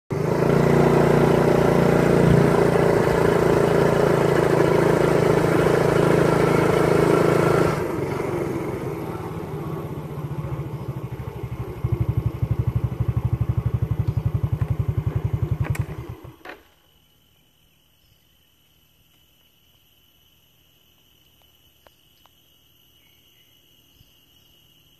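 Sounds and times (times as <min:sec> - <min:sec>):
motorcycle engine running: 0:00.1 - 0:16.5
insects chirping: 0:01.3 - 0:24.9.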